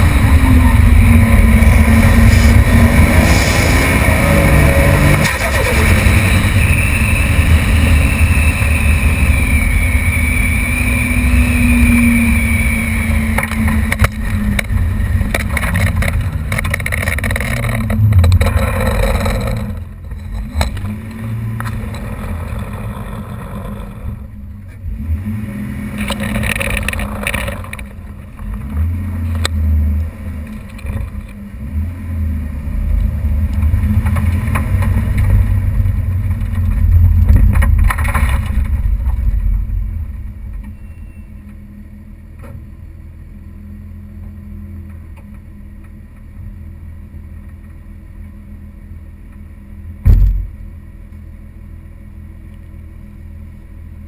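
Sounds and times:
car engine driving: 0.0s - 54.0s
car engine idling: 4.8s - 31.7s.

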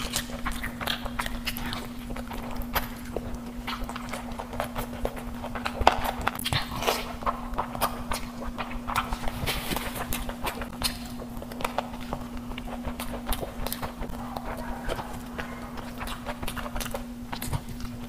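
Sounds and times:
faint steady hum: 0.0s - 18.0s
wet chewing and lip smacking: 0.0s - 18.0s.

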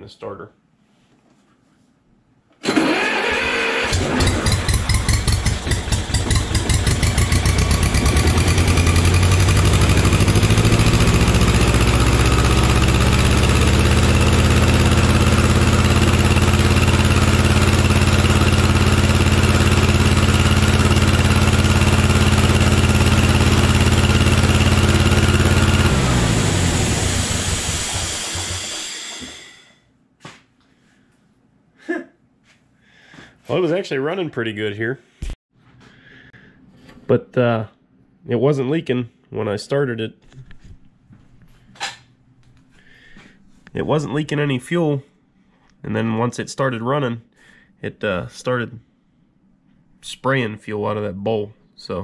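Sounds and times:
air compressor engine running: 2.6s - 29.8s.

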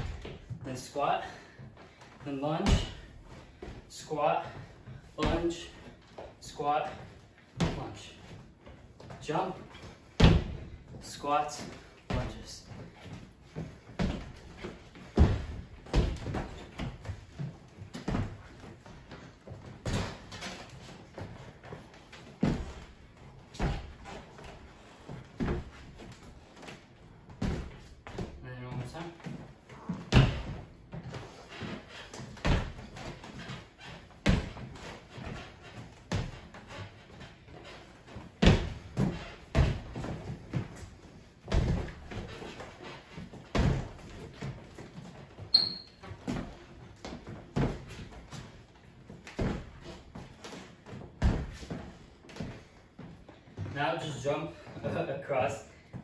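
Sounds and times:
heavy thumps on wooden floor: 2.6s - 3.7s, 10.2s - 10.9s, 29.2s - 31.4s
sneakers thudding on hardwood: 2.6s - 3.7s, 10.2s - 10.8s, 12.1s - 18.5s, 29.8s - 31.2s, 38.4s - 40.9s, 41.5s - 42.4s
light footfalls: 4.4s - 55.0s
sneaker squeak on wood: 45.5s - 46.1s.

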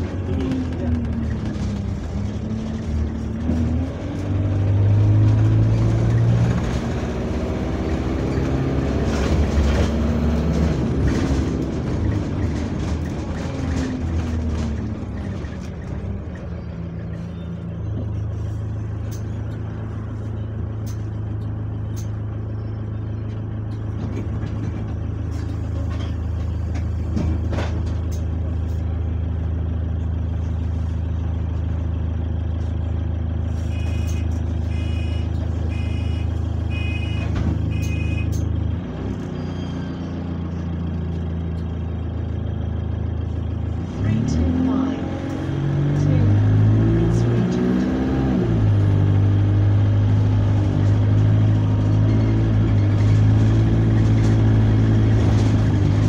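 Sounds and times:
bus engine slowing and idling: 0.0s - 56.0s
short beeps: 33.6s - 38.5s.

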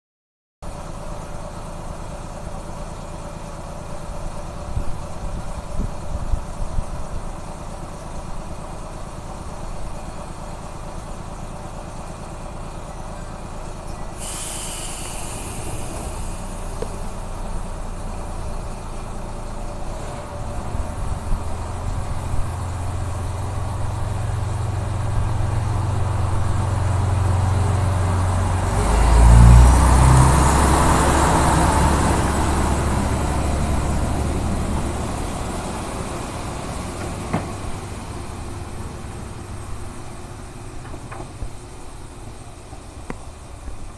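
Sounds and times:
diesel railcar engine: 0.6s - 43.9s
train wheels on rails: 14.1s - 29.4s, 30.0s - 43.9s
air hissing out: 14.2s - 17.4s.

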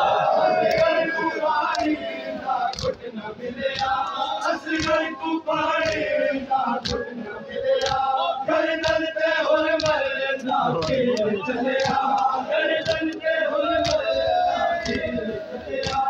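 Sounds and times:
men chanting together: 0.0s - 16.0s
hands slapping chests: 0.6s - 1.0s, 1.6s - 2.0s, 2.7s - 3.1s, 3.7s - 5.2s, 5.8s - 6.2s, 6.8s - 7.1s, 7.8s - 8.2s, 8.8s - 14.2s, 14.8s - 15.2s, 15.8s - 16.0s.

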